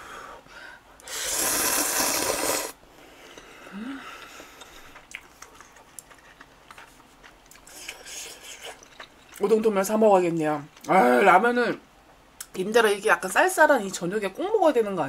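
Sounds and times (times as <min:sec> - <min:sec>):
person slurping noodles: 0:01.1 - 0:02.8, 0:07.6 - 0:09.0
wet chewing: 0:04.2 - 0:09.7.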